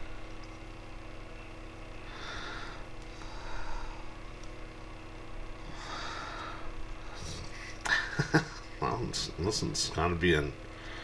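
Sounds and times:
low hum: 0:00.0 - 0:11.0
person breathing through nose: 0:02.1 - 0:04.1.

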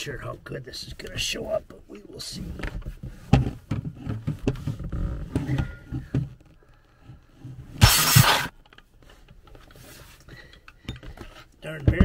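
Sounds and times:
harsh grinding burst: 0:07.8 - 0:08.5.

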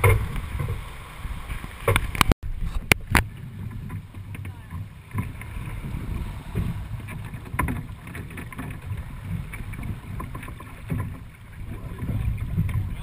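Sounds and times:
water rushing along hull: 0:00.0 - 0:13.0
wind buffeting microphone: 0:00.0 - 0:13.0.

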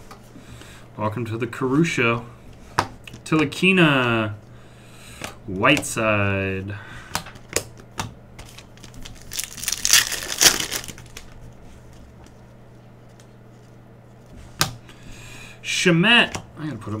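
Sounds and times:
foil wrapper crinkling: 0:08.4 - 0:11.4.

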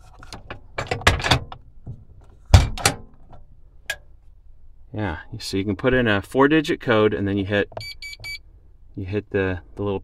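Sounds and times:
safe bolt metal thunk: 0:00.8 - 0:03.4.

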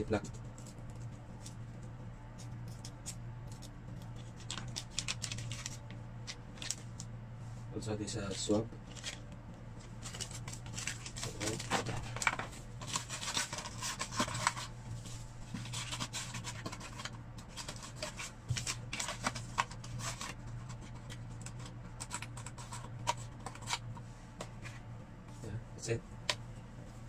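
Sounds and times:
steady low hum: 0:00.0 - 0:27.0
plastic wrappers crinkling: 0:03.6 - 0:07.1, 0:09.9 - 0:14.7.

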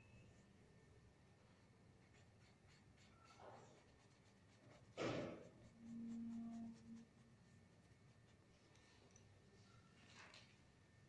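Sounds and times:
paintbrush scratching on paper: 0:02.0 - 0:08.6.

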